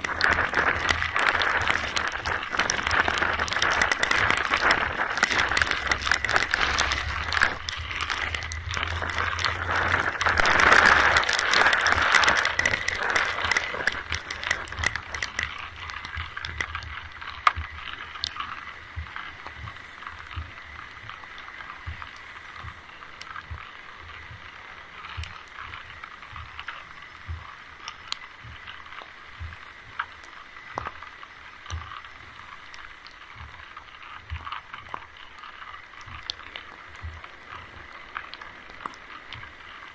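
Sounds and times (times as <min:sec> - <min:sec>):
rain falling: 0:00.0 - 0:39.9
soft low thumps: 0:18.9 - 0:24.5, 0:27.2 - 0:27.6, 0:28.4 - 0:30.0.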